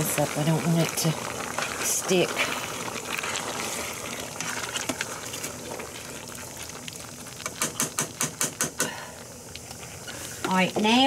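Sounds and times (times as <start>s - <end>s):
spoon stirring wet mix: 0.0s - 8.9s
pot sizzling: 0.0s - 11.0s.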